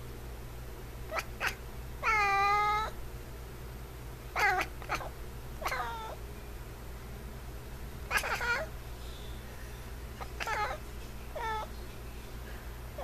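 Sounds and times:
cat meowing: 0:01.1 - 0:03.0, 0:04.4 - 0:06.2, 0:08.1 - 0:08.7, 0:10.2 - 0:11.7.

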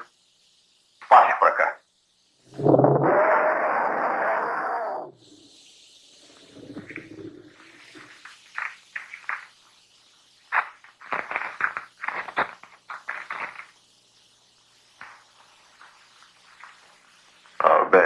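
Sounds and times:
paper rustling and tearing: 0:10.5 - 0:13.8.

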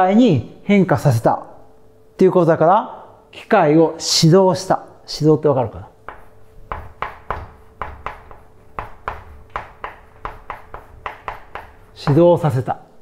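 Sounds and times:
chalk tapping and scraping on blackboard: 0:06.0 - 0:12.6.

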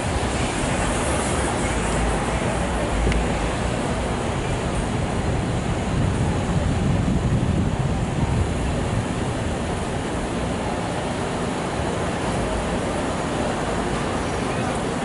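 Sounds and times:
elevated train rumbling: 0:00.0 - 0:15.0
street traffic: 0:00.0 - 0:15.0.

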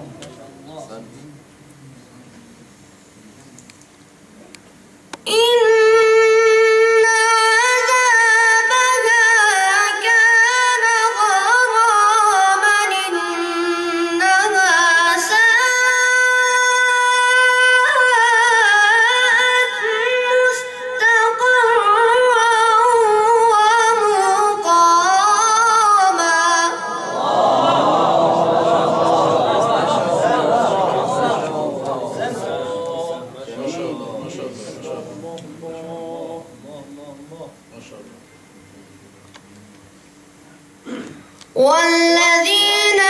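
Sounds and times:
male voice reciting melodically: 0:29.0 - 0:38.1.

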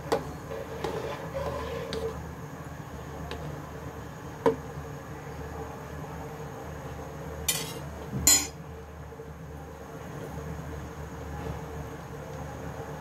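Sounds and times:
boiling water: 0:00.0 - 0:08.1
metal spoon clinking on pot: 0:07.5 - 0:08.6.

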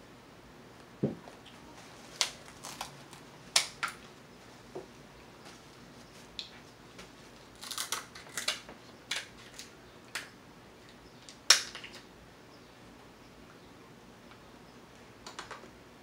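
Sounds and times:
crab shell cracking: 0:02.2 - 0:04.0, 0:07.6 - 0:10.3, 0:11.2 - 0:12.0.

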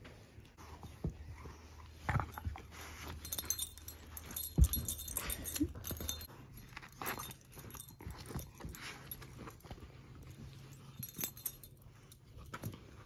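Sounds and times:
collar tags jingling: 0:02.0 - 0:13.0
dog chewing plush toy: 0:03.3 - 0:11.7.

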